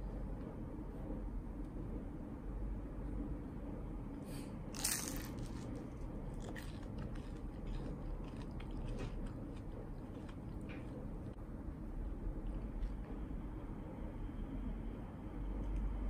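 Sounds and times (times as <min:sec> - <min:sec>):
chewing crisp toast: 0:04.7 - 0:11.4.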